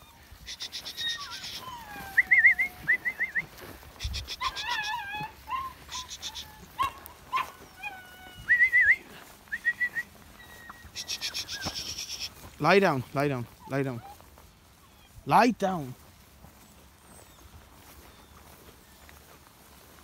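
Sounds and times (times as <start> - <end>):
animal cry: 0.0 - 2.9, 4.0 - 8.5, 10.6 - 12.4.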